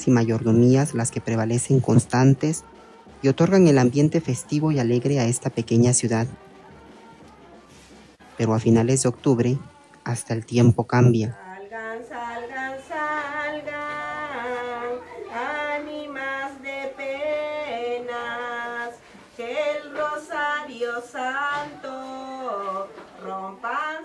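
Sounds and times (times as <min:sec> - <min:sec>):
woman singing slow melody: 0:11.4 - 0:24.0.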